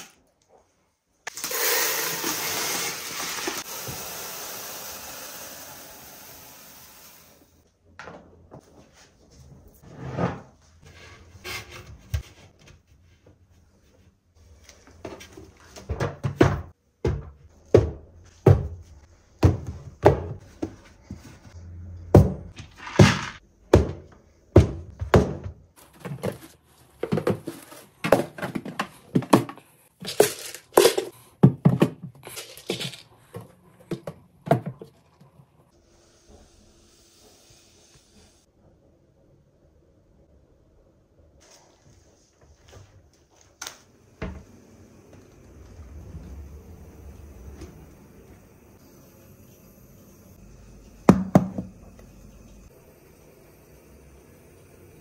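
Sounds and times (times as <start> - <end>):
plastic containers knocking and clicking: 22.2 - 35.0.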